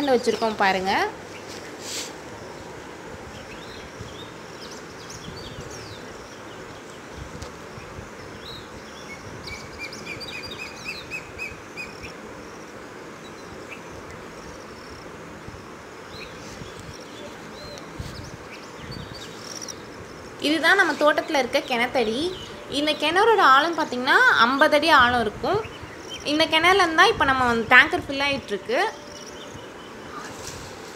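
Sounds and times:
steady outdoor hiss: 0.0 - 30.9
birds chirping and calling: 3.3 - 12.2, 16.0 - 30.6.

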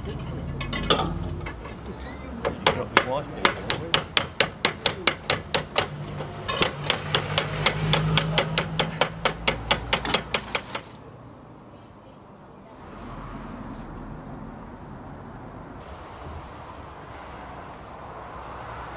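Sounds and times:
hammer tapping on tiled roof: 2.4 - 11.0.

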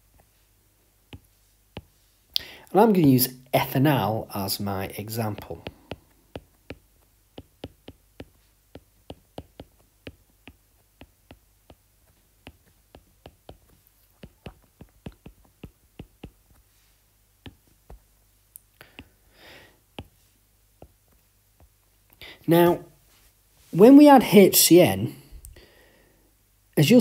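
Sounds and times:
soft hiss: 0.0 - 27.0
stylus tapping on glass screen: 5.4 - 16.6.

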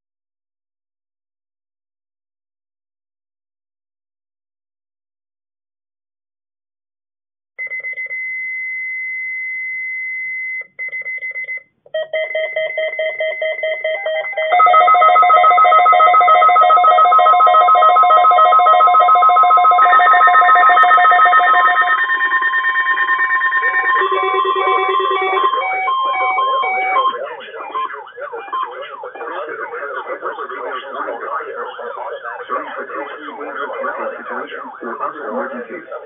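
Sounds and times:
weather radio alert alarms: 13.2 - 36.0.

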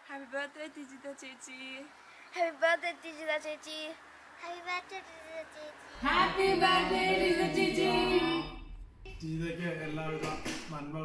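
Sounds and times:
group singing unaccompanied: 6.0 - 8.8.

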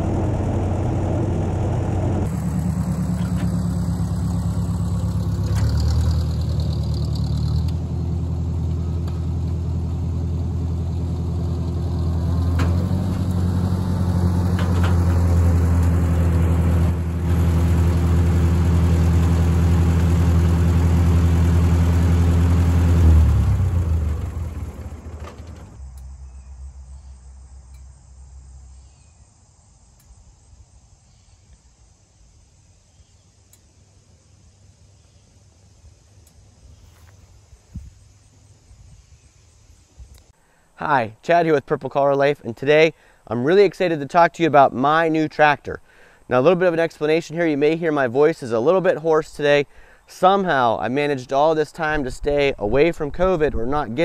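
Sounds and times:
tractor engine running: 0.0 - 26.8.

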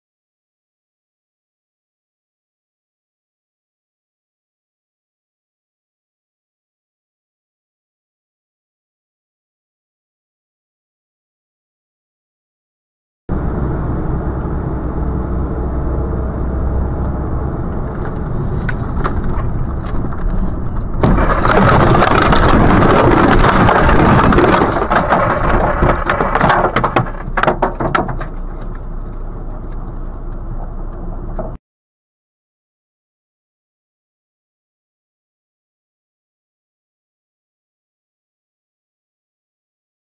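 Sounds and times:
vehicle engine and road noise: 13.3 - 31.6
branches breaking: 18.0 - 27.2
vehicle crashing into trees: 18.0 - 28.3.

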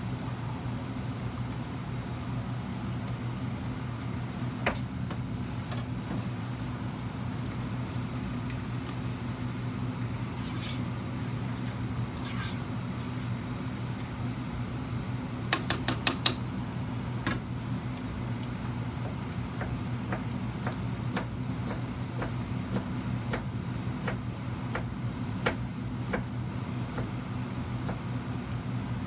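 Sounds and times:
steady low hum: 0.0 - 29.0
knife chopping on plastic board: 19.0 - 26.3, 27.8 - 28.0.

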